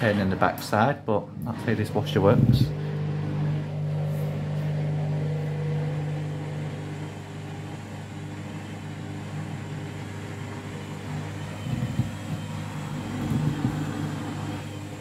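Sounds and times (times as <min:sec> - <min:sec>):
washing machine spinning: 0:00.0 - 0:15.0
washing machine drum bumps: 0:11.5 - 0:14.5.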